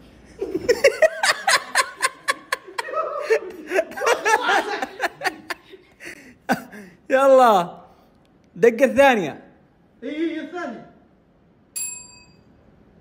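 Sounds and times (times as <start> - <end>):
person giggling and chuckling: 0.2 - 6.9.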